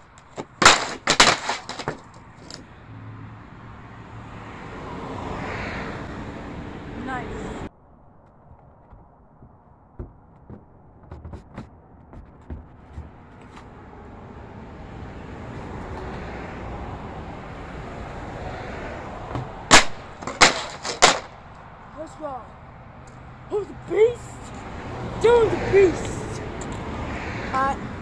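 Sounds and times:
snowboard slamming on pavement: 0.4s - 2.2s, 19.4s - 21.4s.

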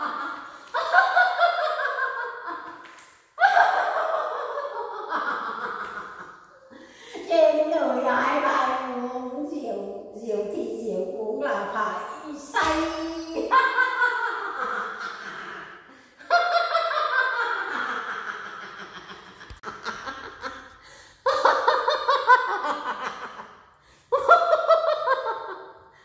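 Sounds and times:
woman laughing: 3.4s - 7.3s.

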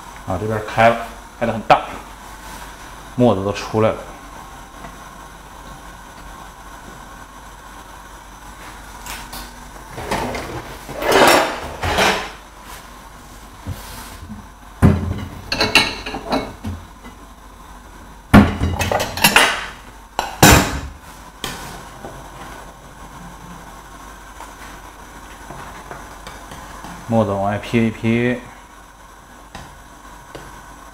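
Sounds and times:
dishes clattering: 14.8s - 16.7s.

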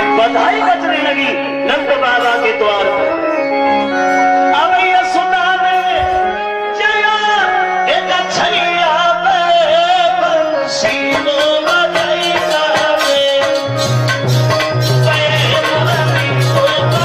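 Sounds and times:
keyboard melody: 0.0s - 17.0s
steady drumming: 11.1s - 17.0s.

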